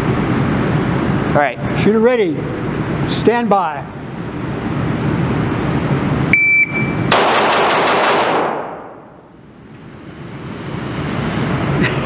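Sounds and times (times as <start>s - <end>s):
shot timer beep: 6.3s - 7.1s
pistol firing rapid shots: 7.1s - 8.8s.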